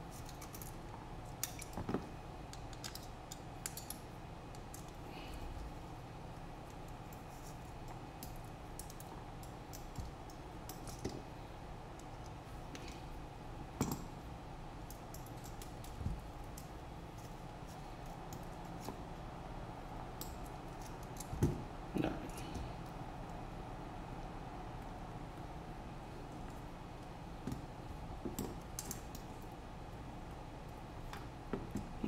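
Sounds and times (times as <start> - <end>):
low background hum: 0.0 - 32.0
small metal parts clicking and tapping: 0.1 - 5.0, 6.6 - 11.2, 13.8 - 14.2, 14.8 - 17.4, 20.2 - 21.5, 27.4 - 29.4.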